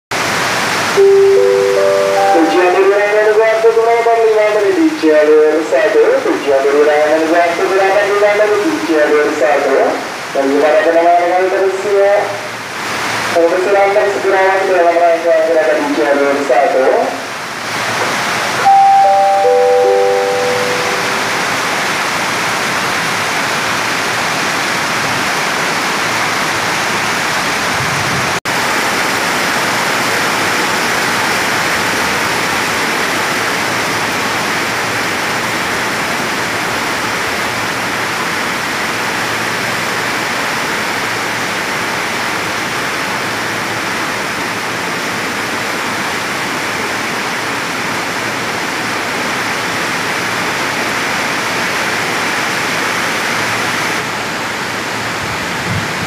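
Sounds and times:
heavy rain on roof: 0.1s - 1.0s, 3.3s - 18.6s, 21.1s - 56.0s.

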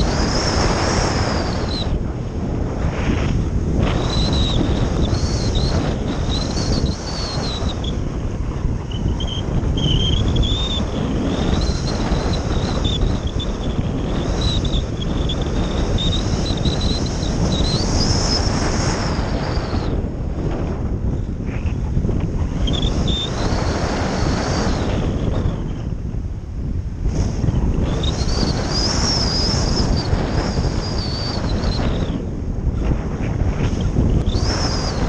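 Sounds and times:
thin high whistle: 0.0s - 2.0s, 3.9s - 8.0s, 8.8s - 20.0s, 22.6s - 24.9s, 27.9s - 32.2s, 34.2s - 35.0s
wind buffeting microphone: 0.0s - 35.0s.

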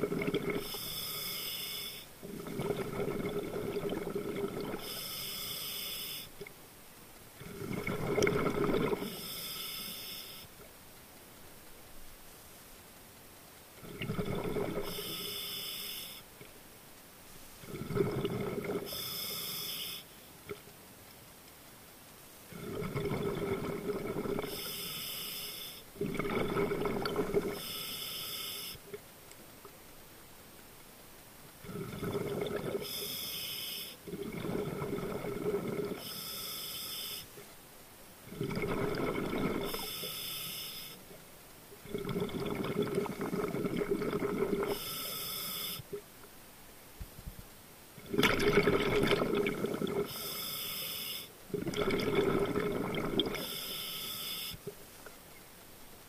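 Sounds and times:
underwater bubbles: 0.0s - 6.6s, 7.4s - 10.9s, 13.8s - 16.6s, 17.6s - 20.8s, 22.5s - 29.8s, 31.6s - 37.6s, 38.2s - 46.2s, 47.0s - 50.8s, 51.4s - 55.5s
scuba regulator breathing hiss: 0.6s - 2.1s, 4.8s - 6.3s, 9.0s - 10.5s, 14.9s - 16.3s, 18.9s - 20.2s, 24.5s - 25.9s, 27.6s - 28.8s, 32.8s - 34.0s, 36.0s - 37.3s, 39.6s - 41.0s, 44.7s - 45.9s, 50.1s - 51.4s, 53.4s - 54.6s.

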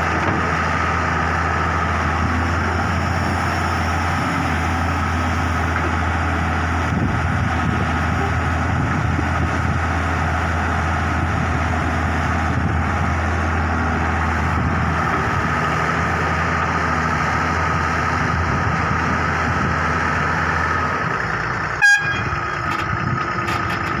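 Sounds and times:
diesel engine under load: 0.0s - 24.0s
short sharp toot: 21.8s - 22.4s.

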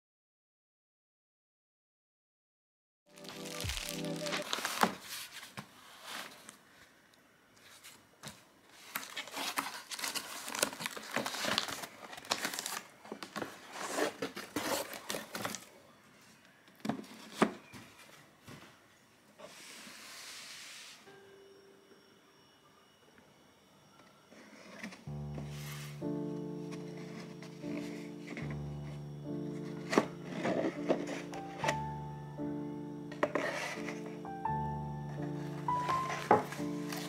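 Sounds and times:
packaging crinkling and tearing: 3.1s - 5.5s, 8.8s - 15.7s.

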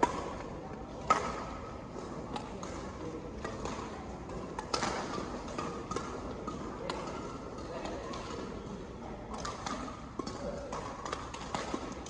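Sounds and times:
badminton rackets hitting shuttlecock: 0.0s - 8.7s, 9.3s - 12.0s.

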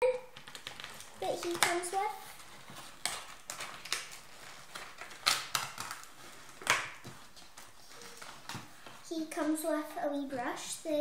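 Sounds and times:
sharp clicks and crackles: 0.3s - 9.0s
plastic packaging crinkling: 0.3s - 9.7s.

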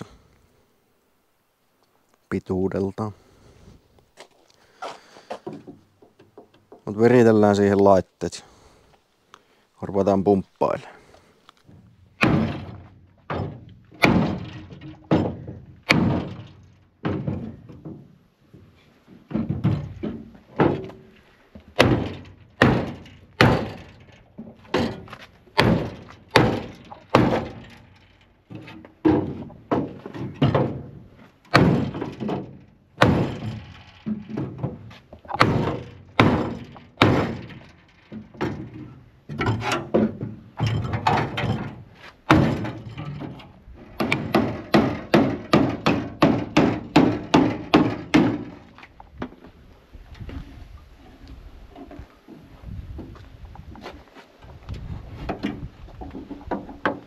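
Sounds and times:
dull thunks on car bodywork: 12.2s - 18.0s, 21.8s - 23.9s, 24.7s - 27.7s, 29.0s - 37.7s, 38.3s - 42.9s, 44.0s - 48.6s.

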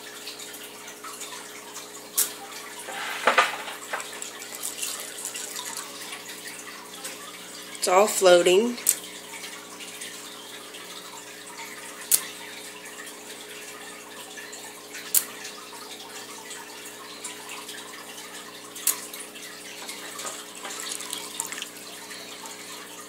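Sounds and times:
beads splashing into water: 3.0s - 6.1s, 20.0s - 21.8s.

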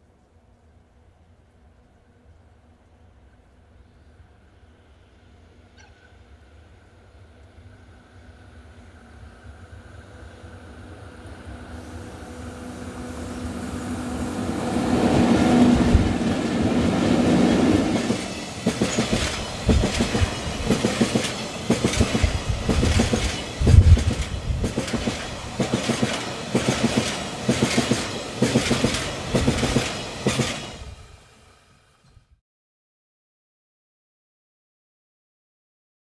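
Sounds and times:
electric locomotive humming: 0.7s - 32.1s
train wheels clacking over rails: 14.4s - 30.9s.

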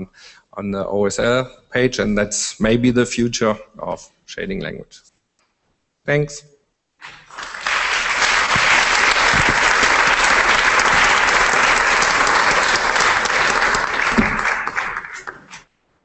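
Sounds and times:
audience applauding: 7.0s - 15.6s.

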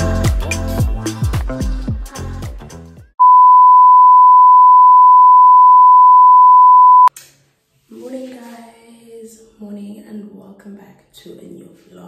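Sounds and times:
steady electronic beep: 3.2s - 7.1s.

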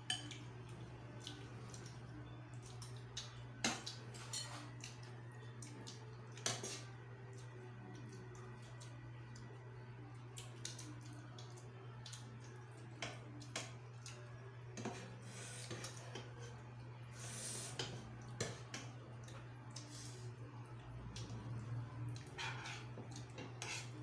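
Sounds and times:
cutlery clinking on plates: 3.6s - 4.8s.

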